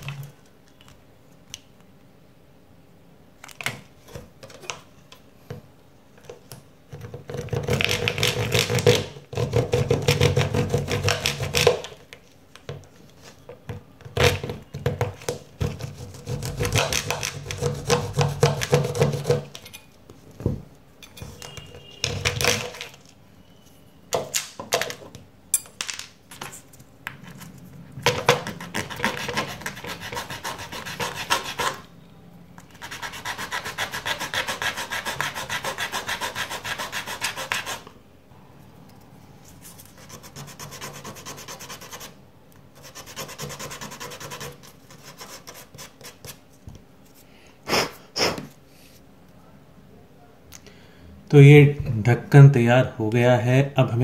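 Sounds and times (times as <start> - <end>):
knife scraping plastic: 14.1 - 19.8.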